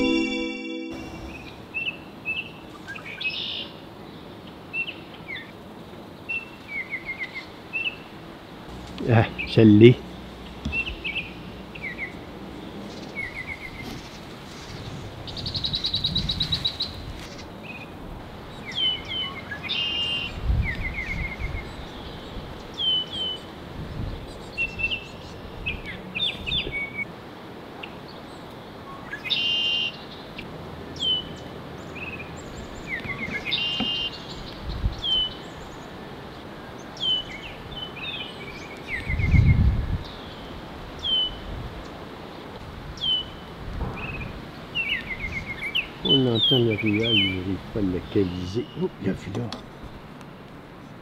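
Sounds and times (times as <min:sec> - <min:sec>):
songbirds chipping and trilling: 0:31.0 - 0:42.0, 0:43.0 - 0:50.5.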